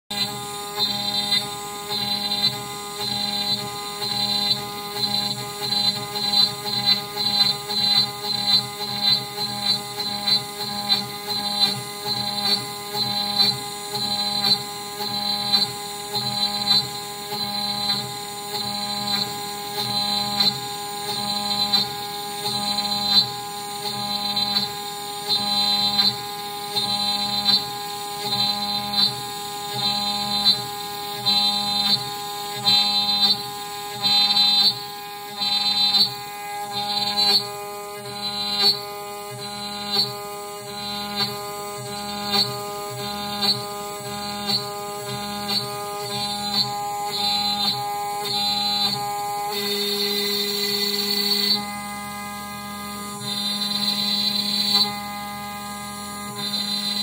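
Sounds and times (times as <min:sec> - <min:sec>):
router bit cutting wood: 0:00.1 - 0:57.0
router spindle whining: 0:00.1 - 0:57.0.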